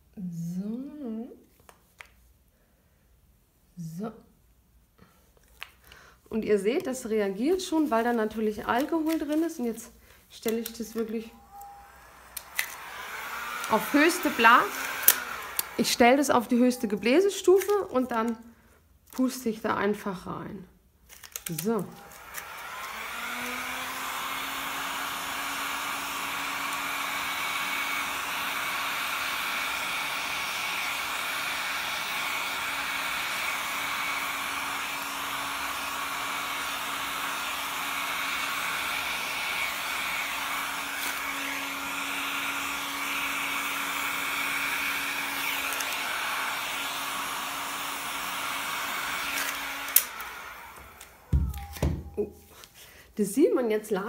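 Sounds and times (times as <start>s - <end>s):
heat gun blowing air: 10.2s - 16.8s, 21.5s - 51.8s.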